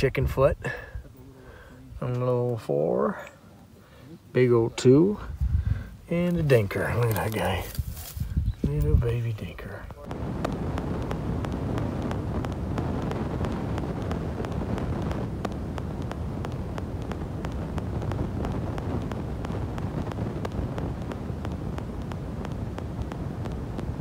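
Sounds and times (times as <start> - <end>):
wind buffeting microphone: 5.1 - 24.0.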